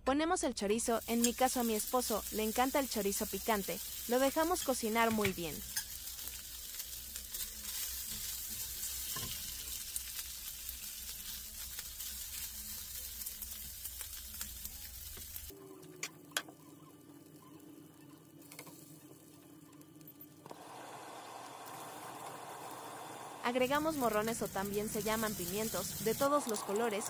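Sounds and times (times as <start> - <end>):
meat sizzling in a frying pan: 0.8 - 15.5, 20.5 - 27.0
spatula stirring in pan: 1.1 - 15.5.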